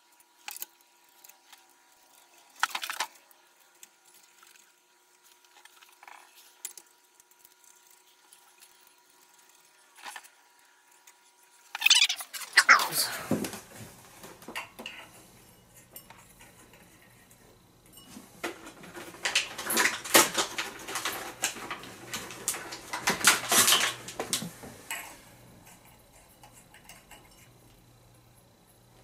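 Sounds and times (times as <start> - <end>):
glass shades clinking: 12.0 - 27.6.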